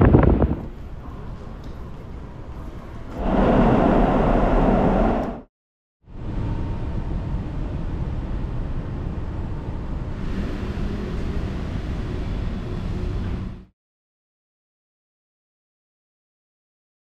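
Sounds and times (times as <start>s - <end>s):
low rumble: 0.0s - 1.3s, 3.1s - 5.5s
hiss: 3.2s - 5.4s.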